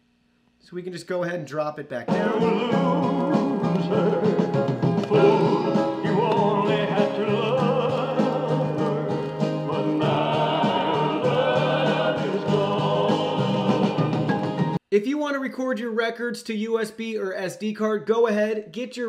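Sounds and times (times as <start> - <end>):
music with singing from record: 2.1 - 14.8.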